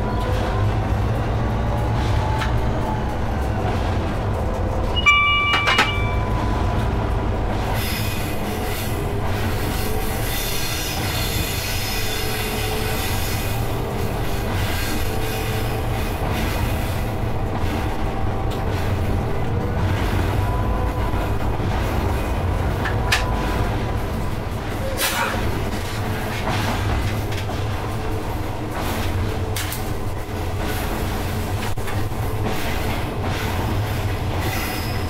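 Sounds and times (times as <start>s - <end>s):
train low rumble: 0.0s - 35.0s
metallic ringing tone: 5.0s - 6.4s
train wheels squealing: 7.7s - 8.9s, 9.6s - 13.5s, 34.4s - 35.0s.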